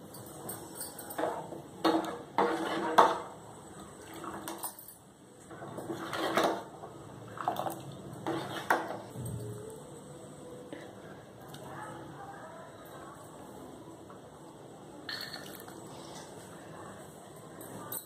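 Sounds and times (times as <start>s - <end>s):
metal ladle scraping steel pot: 2.3s - 3.3s, 8.2s - 9.0s
liquid sloshing: 5.6s - 9.5s.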